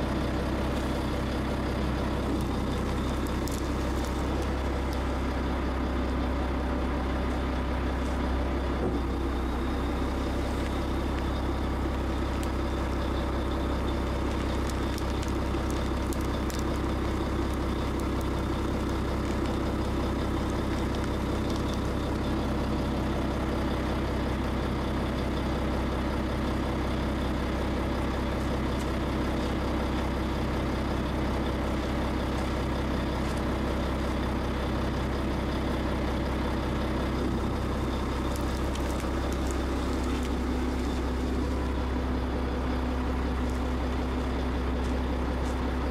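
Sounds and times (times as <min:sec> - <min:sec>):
diesel engine running: 0:00.0 - 0:45.9.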